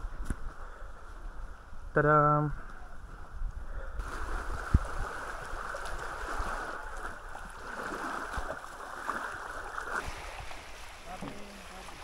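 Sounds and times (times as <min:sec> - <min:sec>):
small waves lapping on sand: 0:04.0 - 0:12.0.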